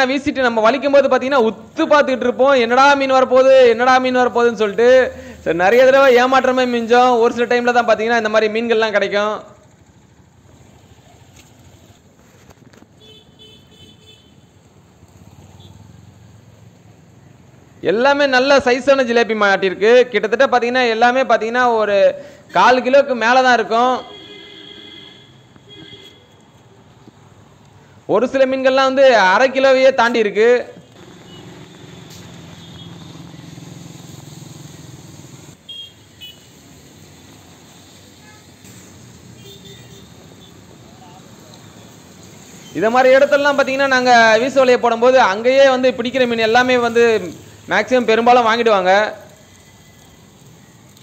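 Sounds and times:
road traffic rumble: 0:00.0 - 0:51.0
vehicle engine idling: 0:09.5 - 0:12.1.

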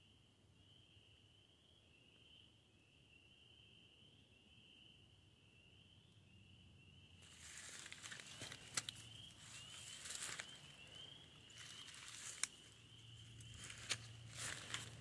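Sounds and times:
footsteps crunching dry leaves: 0:07.2 - 0:15.0
twigs snapping: 0:07.4 - 0:10.6, 0:11.5 - 0:15.0.

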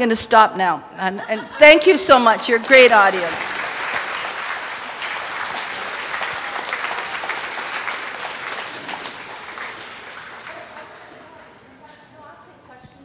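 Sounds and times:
audience applauding: 0:01.8 - 0:11.7.

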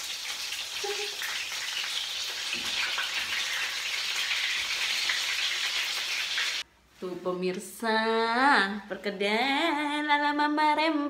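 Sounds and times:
fritters frying in hot oil: 0:00.0 - 0:06.6.

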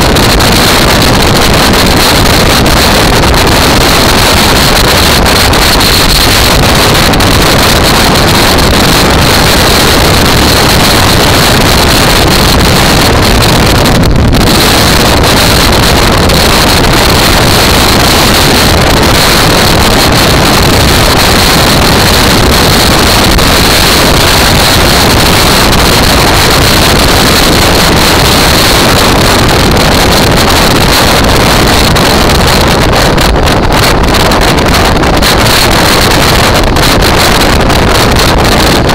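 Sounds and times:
wind rush on microphone: 0:00.0 - 0:38.9.

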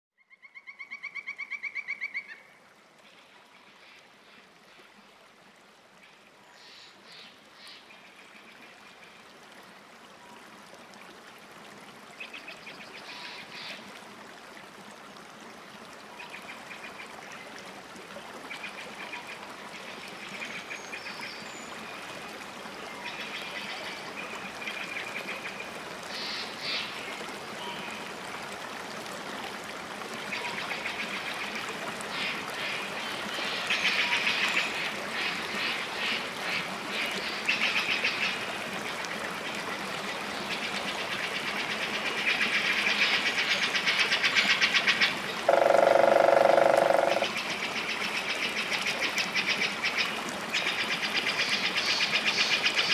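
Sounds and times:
loud rapidly pulsed call: 0:45.5 - 0:47.3.

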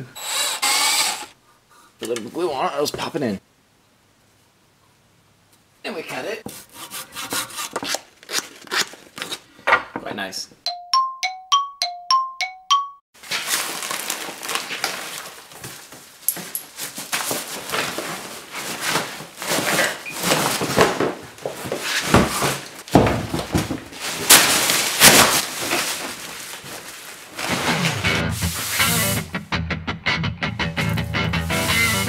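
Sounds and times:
chime jingle: 0:10.7 - 0:13.0
plastic bag crinkling: 0:13.2 - 0:21.7, 0:23.8 - 0:27.8.

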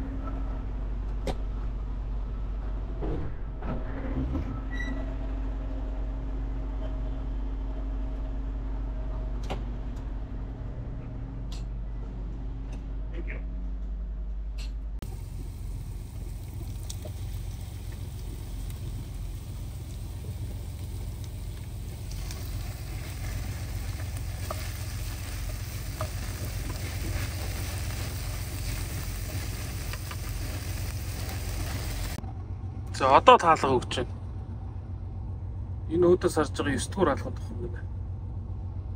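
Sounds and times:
truck driving rumble: 0:15.0 - 0:38.9.

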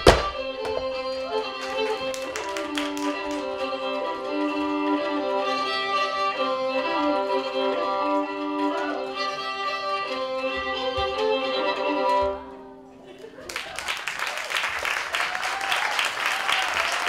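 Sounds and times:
fiddle melody: 0:00.0 - 0:13.5.

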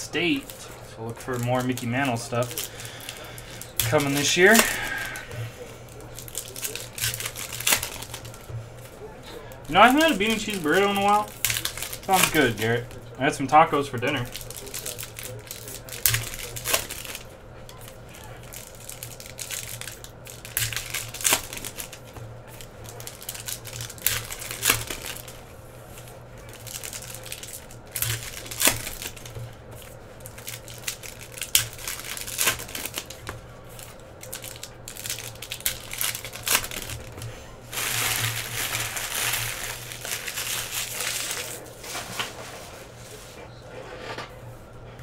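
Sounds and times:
foil wrappers crinkling: 0:00.0 - 0:42.8.

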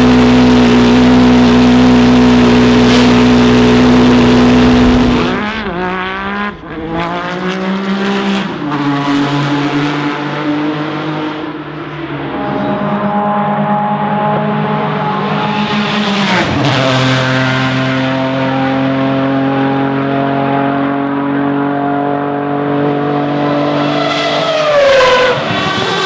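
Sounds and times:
race car engine running: 0:00.0 - 0:11.2
car accelerating through gears: 0:00.0 - 0:11.6.

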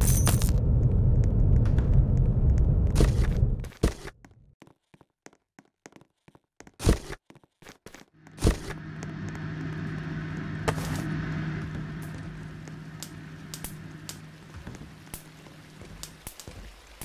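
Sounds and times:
steady low hum: 0:00.0 - 0:03.7, 0:08.2 - 0:16.4.

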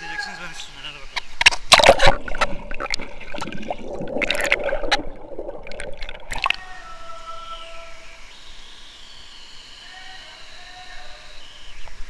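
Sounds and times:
quiet hiss: 0:00.0 - 0:12.0
water splashing and gurgling: 0:01.3 - 0:06.7.

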